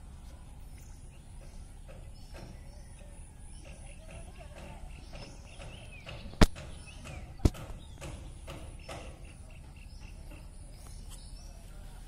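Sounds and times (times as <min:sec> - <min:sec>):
faint bird chirps: 0:00.0 - 0:12.0.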